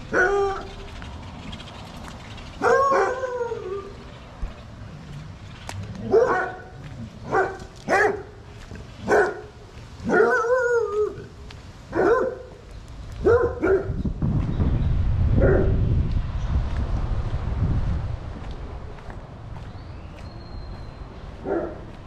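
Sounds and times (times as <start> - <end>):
dog barking: 0.1 - 0.7, 2.6 - 3.5, 6.0 - 8.4, 9.0 - 10.8, 11.9 - 12.6, 13.2 - 14.0, 15.4 - 15.8, 21.4 - 21.9
low rumble: 13.3 - 19.6.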